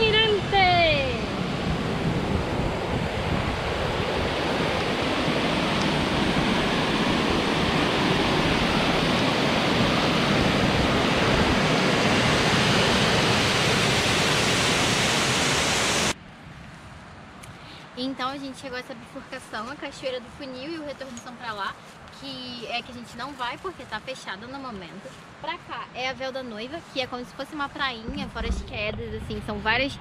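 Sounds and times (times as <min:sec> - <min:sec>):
waterfall rushing: 0:00.0 - 0:16.2.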